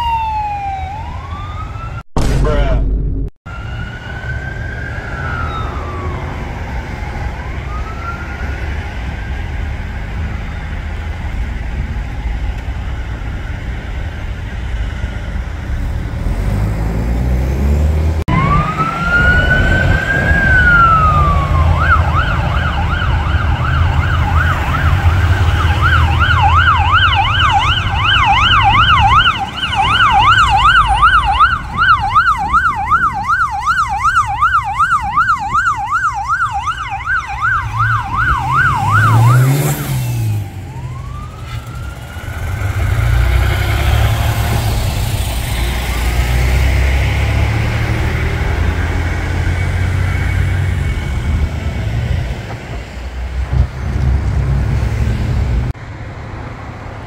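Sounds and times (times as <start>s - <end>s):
siren fast yelp: 0.0s - 2.0s, 3.5s - 6.6s, 18.3s - 42.6s
ambulance siren wailing: 0.0s - 2.1s, 3.5s - 15.0s, 17.8s - 52.9s
traffic rumble: 0.0s - 57.0s.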